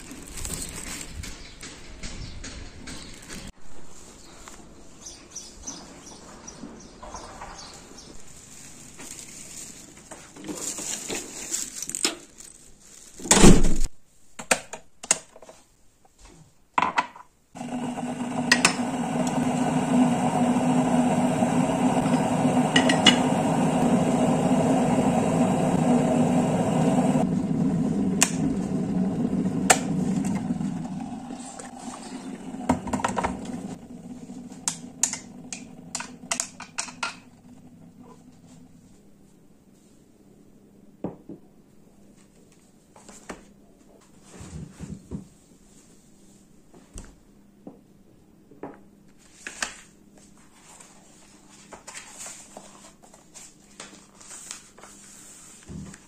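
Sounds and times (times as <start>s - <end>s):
electric kettle heating water: 17.6s - 38.6s
water pouring into cup: 30.9s - 36.4s.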